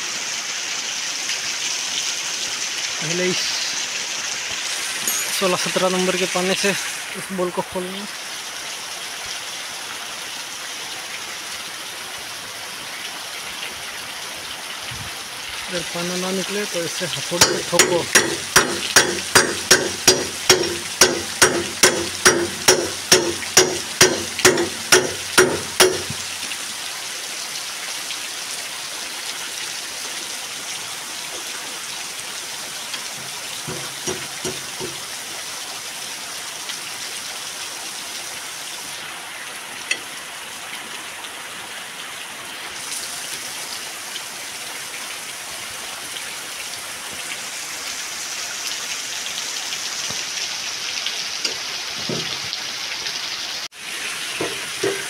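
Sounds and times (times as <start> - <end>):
steady rain: 0.0 - 55.0
hammer ringing on metal: 17.4 - 26.3.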